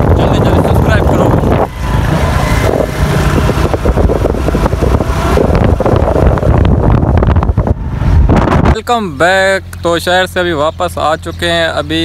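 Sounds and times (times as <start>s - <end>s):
wind buffeting microphone: 0.0s - 8.9s
motorcycle engine running: 0.0s - 12.0s.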